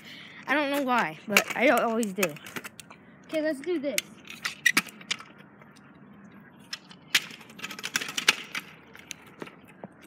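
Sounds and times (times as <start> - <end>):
kick scooter clattering on concrete: 0.5 - 2.8, 7.1 - 10.0.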